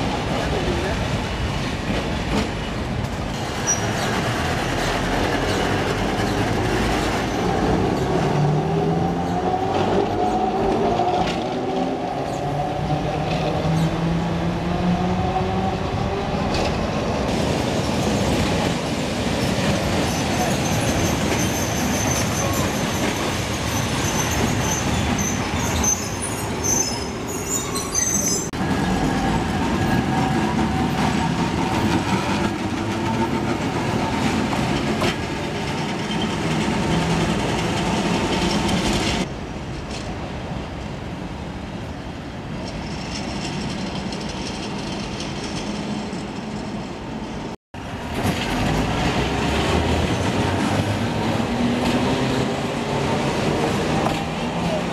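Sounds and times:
steel wheels rumbling on rail: 0.0s - 54.9s
high-pitched wheel squeal: 23.7s - 28.5s.

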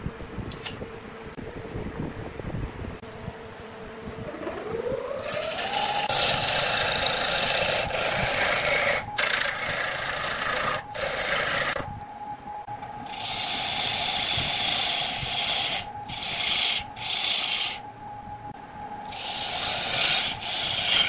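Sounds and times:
wood lathe motor humming: 4.3s - 11.9s, 13.0s - 17.9s, 19.0s - 21.0s
turning tool scraping wood: 5.2s - 11.8s, 13.1s - 17.8s, 19.0s - 21.0s.

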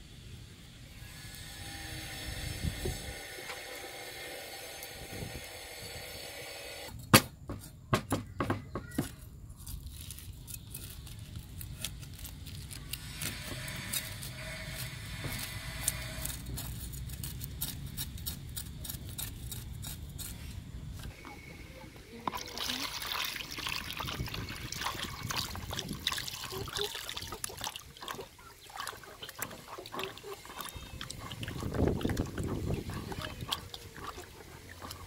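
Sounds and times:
cleaver scraping fish scales: 9.6s - 21.2s, 24.5s - 35.0s.

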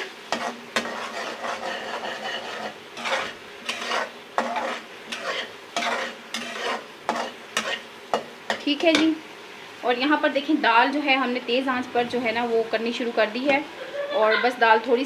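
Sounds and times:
spoon scraping a pan: 0.0s - 9.2s
light sizzle: 0.0s - 15.0s.

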